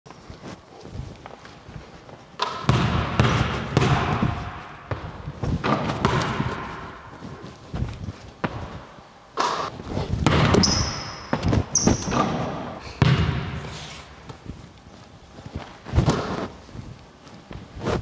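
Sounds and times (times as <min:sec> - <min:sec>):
basketball bouncing on wooden floor: 0:02.4 - 0:07.0, 0:08.4 - 0:09.6, 0:10.2 - 0:13.6
basketball hitting rim: 0:02.4 - 0:07.0, 0:09.4 - 0:13.7.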